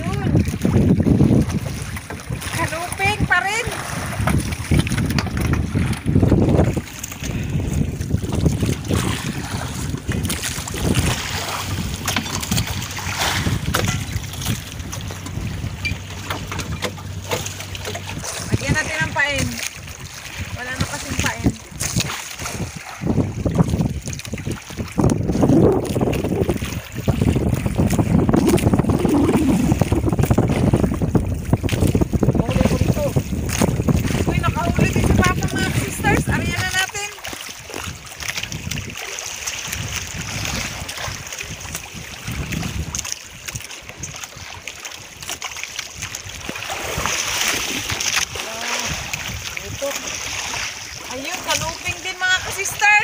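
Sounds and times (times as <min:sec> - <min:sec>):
boat engine drone: 0:00.0 - 0:21.9
wind buffeting microphone: 0:00.0 - 0:53.0.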